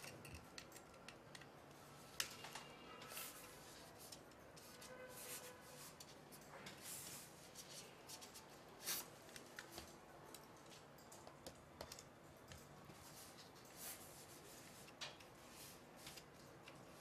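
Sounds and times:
hex key clicking and scraping screws: 0:00.0 - 0:01.8.

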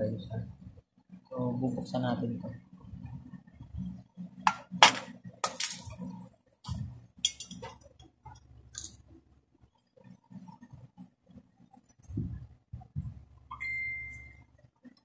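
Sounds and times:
metal parts clinking and rattling: 0:05.4 - 0:06.0, 0:07.2 - 0:07.8, 0:08.7 - 0:09.0.

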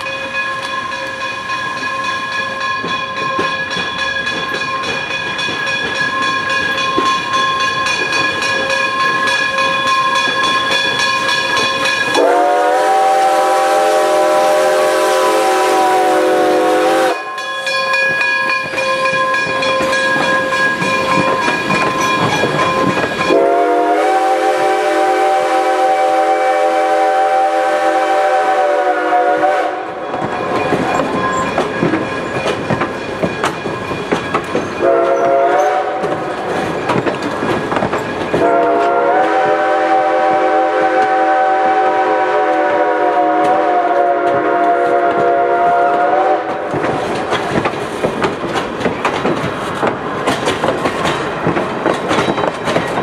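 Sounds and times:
train wheels clacking on rail joints: 0:00.0 - 0:25.8, 0:29.4 - 0:41.4, 0:42.3 - 0:53.0
steam whistle blasts: 0:12.1 - 0:17.4, 0:23.3 - 0:30.0, 0:34.8 - 0:36.2, 0:38.4 - 0:46.6.

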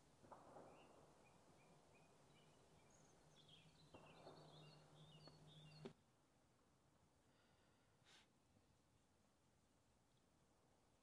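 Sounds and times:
small birds chirping and twittering: 0:00.2 - 0:06.0.

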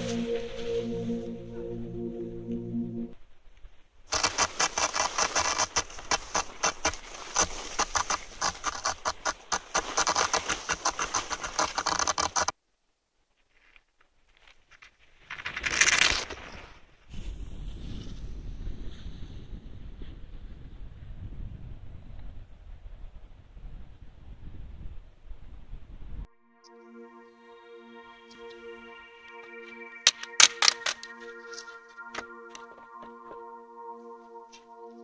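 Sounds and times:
snow crunching underfoot: 0:04.1 - 0:12.5
wind noise on microphone: 0:17.1 - 0:26.3.

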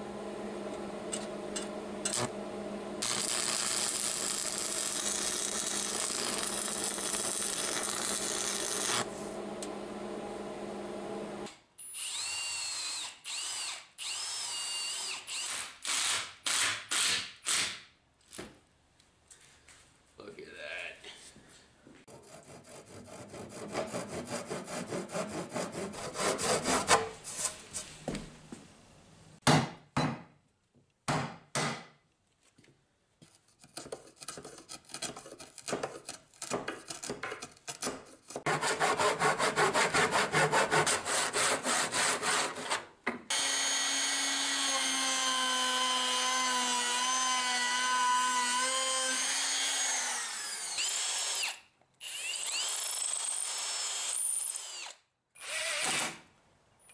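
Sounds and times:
hand saw cutting wood: 0:03.0 - 0:09.1, 0:22.1 - 0:27.6, 0:33.4 - 0:53.0
cordless drill running: 0:11.8 - 0:16.0, 0:43.3 - 0:47.3, 0:48.7 - 0:56.2
chisel work: 0:22.1 - 0:27.6, 0:33.2 - 0:55.6.

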